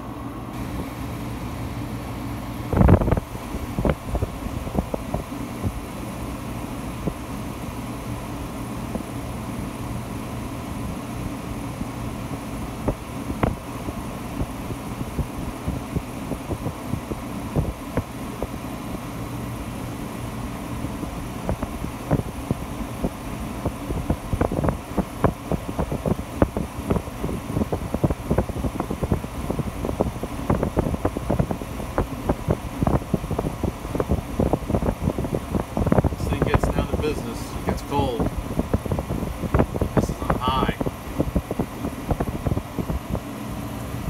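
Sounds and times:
air conditioner running: 0.0 - 44.0
wind buffeting microphone: 2.7 - 5.8, 14.4 - 18.6, 21.4 - 44.0.

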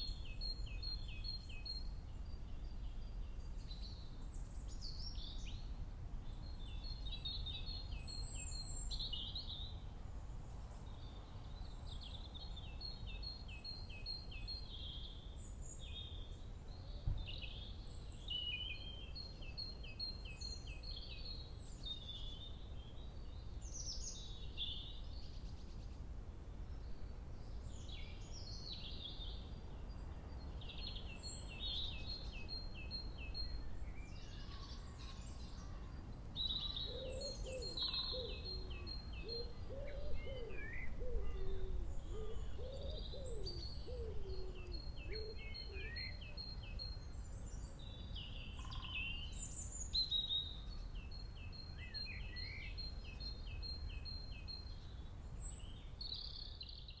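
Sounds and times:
songbirds singing: 0.0 - 57.0
low cooing call: 36.8 - 46.2.

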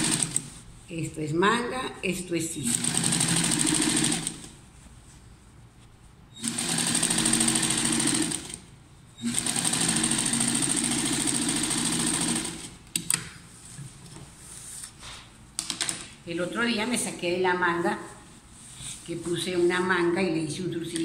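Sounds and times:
sewing machine stitching: 0.0 - 0.4, 2.6 - 4.5, 6.4 - 8.6, 9.2 - 12.7.

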